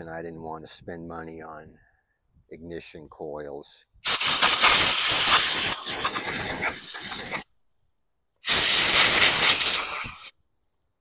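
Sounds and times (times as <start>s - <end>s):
compressed air hissing: 4.0s - 7.5s, 8.4s - 10.3s.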